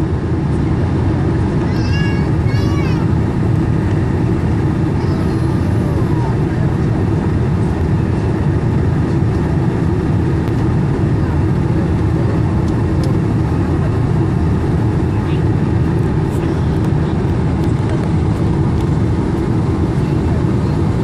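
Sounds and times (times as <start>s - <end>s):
airliner cabin engine rumble: 0.0s - 21.0s.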